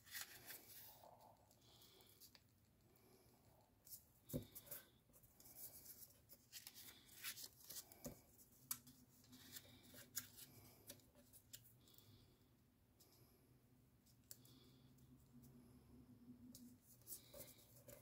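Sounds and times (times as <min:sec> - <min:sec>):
paper rustling and crinkling: 0:00.0 - 0:01.0.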